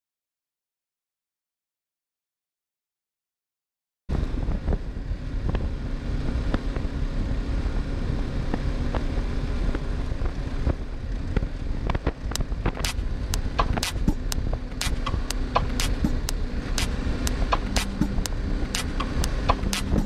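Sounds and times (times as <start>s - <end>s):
vehicle driving low rumble: 4.1s - 20.0s
wind noise: 4.1s - 20.0s
sharp clicks and ticks: 11.9s - 20.0s.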